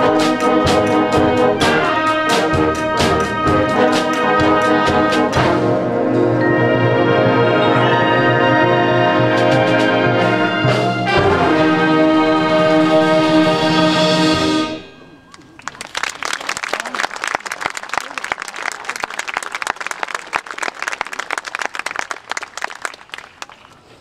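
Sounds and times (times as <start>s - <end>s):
concert band chord: 0.0s - 15.3s
audience applause: 15.3s - 23.8s.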